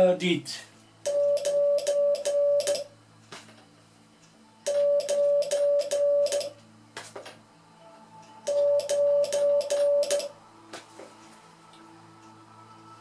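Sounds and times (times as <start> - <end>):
morse code beeps: 1.1 - 2.9, 4.7 - 6.5, 8.5 - 10.3.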